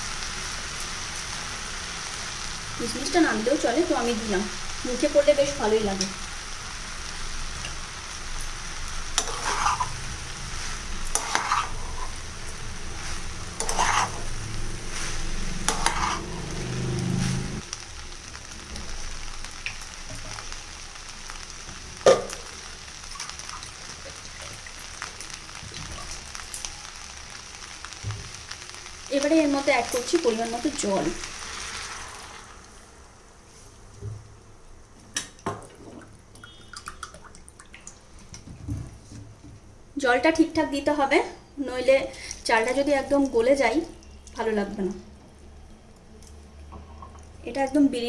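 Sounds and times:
rice and vegetables sizzling in oil: 0:00.0 - 0:33.9, 0:40.0 - 0:46.7
spatula scraping a pan: 0:09.2 - 0:10.0, 0:11.1 - 0:12.2, 0:13.1 - 0:16.5.

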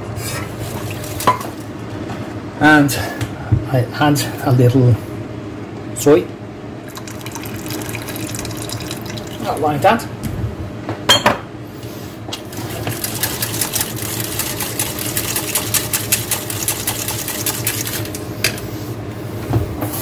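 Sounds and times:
whisk beating against metal pan: 0:12.5 - 0:18.2.

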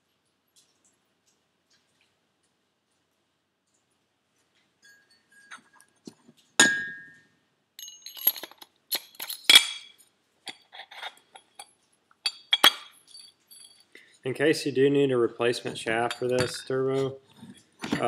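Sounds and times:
metal parts clinking: 0:07.8 - 0:11.7, 0:12.3 - 0:13.9.

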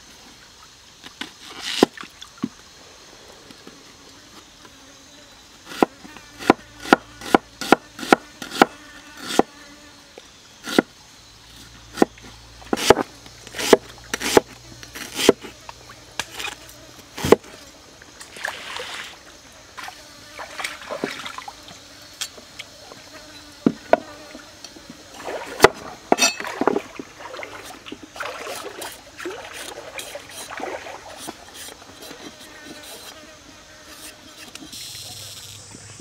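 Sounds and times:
knife striking wooden cutting board: 0:25.6 - 0:26.4.

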